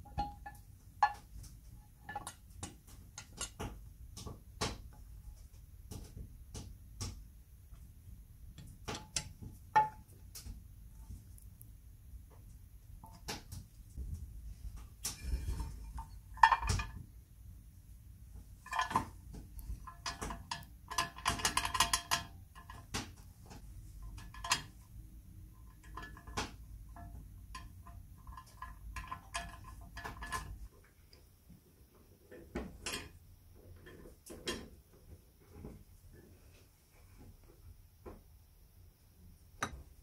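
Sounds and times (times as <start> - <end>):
cast-iron parts clinking: 0.0 - 5.0, 8.6 - 10.1, 14.8 - 17.1, 18.5 - 30.7, 32.6 - 33.2.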